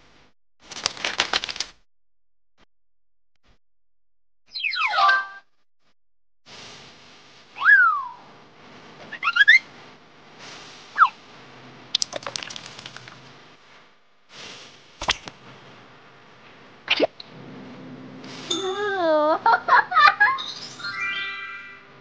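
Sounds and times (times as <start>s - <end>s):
rapid patter of clicks: 0.6s - 1.8s, 12.0s - 13.4s
whistle-like sound effects: 7.6s - 8.3s.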